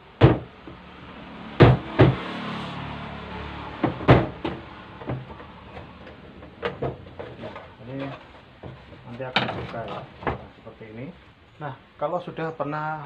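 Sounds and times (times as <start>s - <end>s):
plastic panel knocks and clunks: 3.8s - 7.5s, 8.6s - 10.5s.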